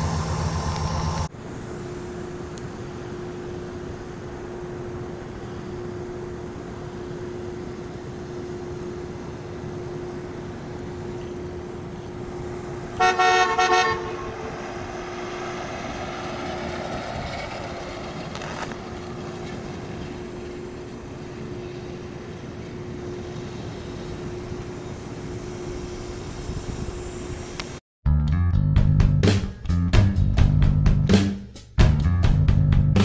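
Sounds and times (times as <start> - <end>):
car horn toots: 13.0 - 14.5.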